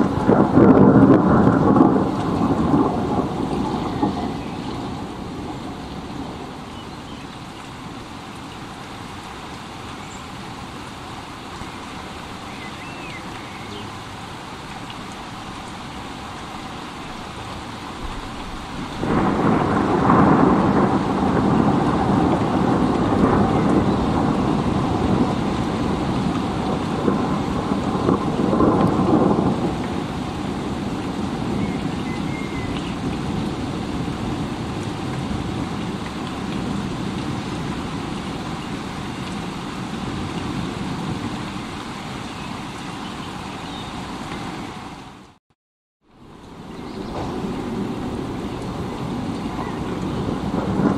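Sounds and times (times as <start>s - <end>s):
thunder rolling: 0.0s - 6.7s, 17.9s - 32.4s, 47.0s - 50.9s
steady rain: 0.0s - 45.4s, 46.0s - 50.9s.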